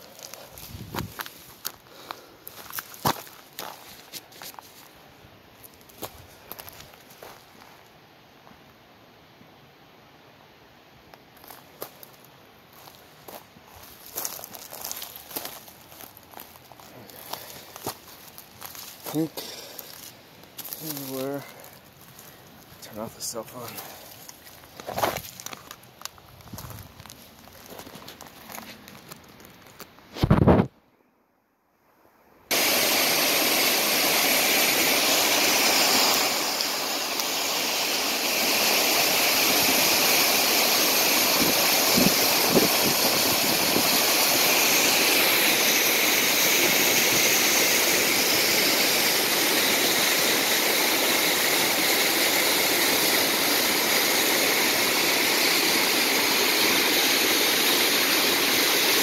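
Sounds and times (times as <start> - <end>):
waterfall rushing: 32.5 - 59.0.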